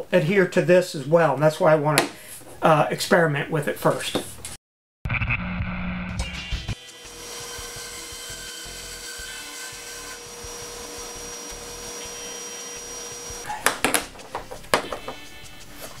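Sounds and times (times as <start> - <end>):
bandsaw cutting pipe: 6.7 - 14.4.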